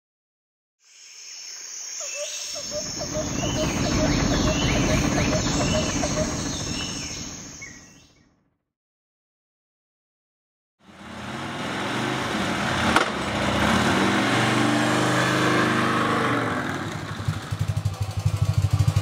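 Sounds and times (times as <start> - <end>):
insect-like trilling and chirping: 0.8 - 8.0
low rumble: 2.7 - 8.0.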